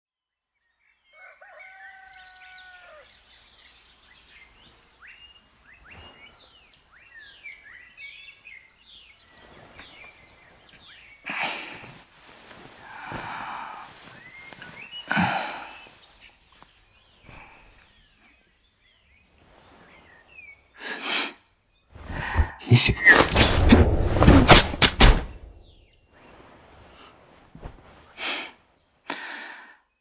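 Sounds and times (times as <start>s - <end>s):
rooster crowing: 1.1s - 3.1s
small birds chirping: 2.6s - 23.6s
noisy breathy sounds: 12.8s - 14.1s, 20.8s - 23.4s, 28.2s - 29.9s.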